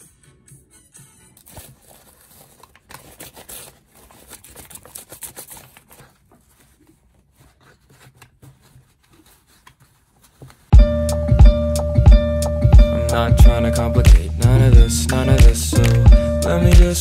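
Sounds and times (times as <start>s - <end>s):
paper rustling and crinkling: 1.4s - 10.7s
small taps and scrapes: 6.3s - 10.7s.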